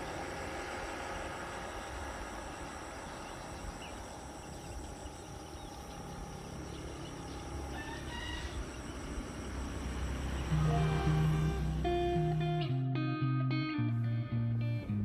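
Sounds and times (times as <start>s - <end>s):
outdoor background hiss: 0.0s - 15.0s
rooster crowing: 7.6s - 8.9s.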